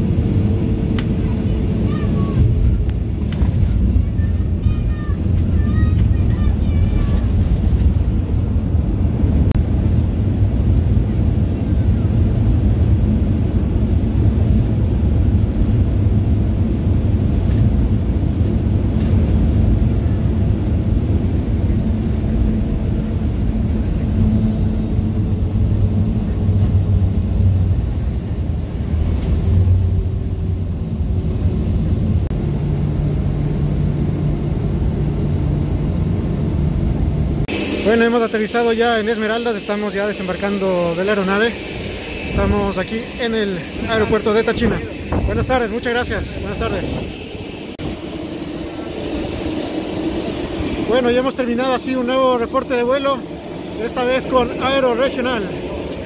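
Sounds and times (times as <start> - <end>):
jet engines and wheels rumbling: 0.0 - 56.0
faint falling whine: 21.7 - 56.0.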